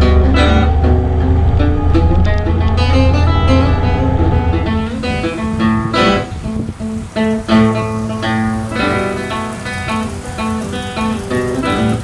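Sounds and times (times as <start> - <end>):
guitar plucking and strumming: 0.0 - 12.0.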